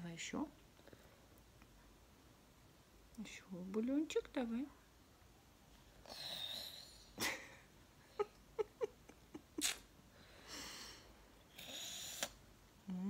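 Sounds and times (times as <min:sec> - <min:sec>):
soft breath: 0:00.8 - 0:01.4, 0:10.1 - 0:12.4
tiny hummed mouth sounds: 0:09.4 - 0:09.9, 0:11.5 - 0:13.0
toddler slurping soup: 0:11.5 - 0:12.4.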